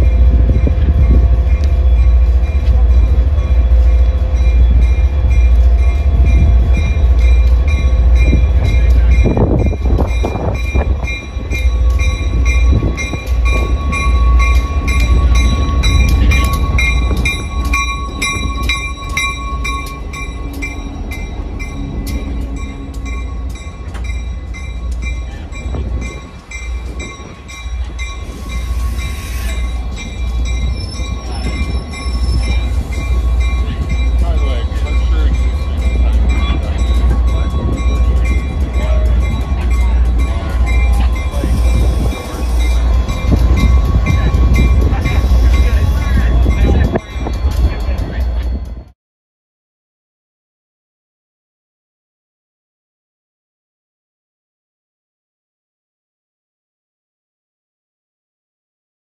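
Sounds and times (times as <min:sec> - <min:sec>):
locomotive engine rumbling: 0:00.0 - 0:48.9
bell ringing: 0:04.0 - 0:48.9.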